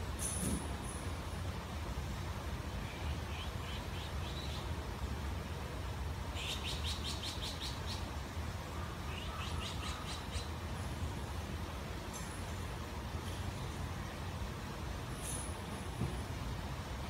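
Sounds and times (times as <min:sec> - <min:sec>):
songbird chirping: 0:02.7 - 0:04.8, 0:06.3 - 0:10.7.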